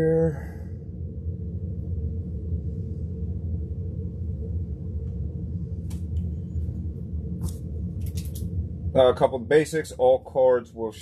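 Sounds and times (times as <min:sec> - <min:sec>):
low background hum: 0:00.0 - 0:11.0
light clicks: 0:07.4 - 0:08.5.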